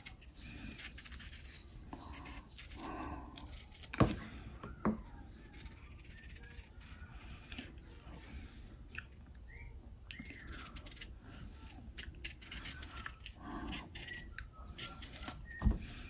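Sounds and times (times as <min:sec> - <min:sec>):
knife scraping banana skin: 0:00.0 - 0:04.2, 0:10.2 - 0:15.6.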